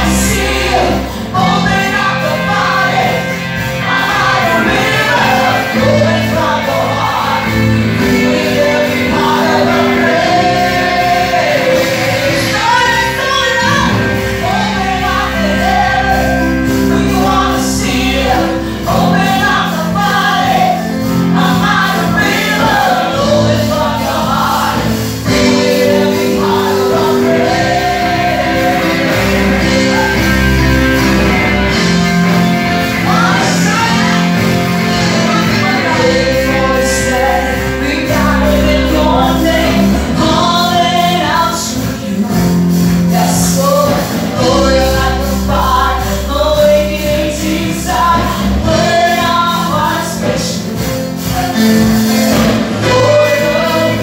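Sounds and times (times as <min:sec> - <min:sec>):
amplified band playing: 0:00.0 - 0:54.0
women singing together: 0:00.0 - 0:54.0.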